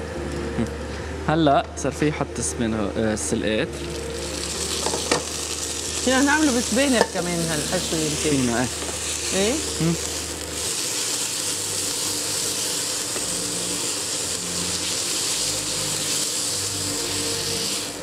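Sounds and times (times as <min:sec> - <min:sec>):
vegetables sizzling in frying pan: 0:03.8 - 0:18.0.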